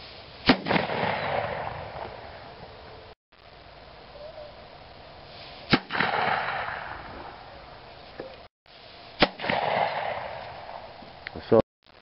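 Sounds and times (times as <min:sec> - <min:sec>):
gun firing with echo: 0:00.5 - 0:02.1, 0:05.7 - 0:07.1, 0:09.2 - 0:10.8.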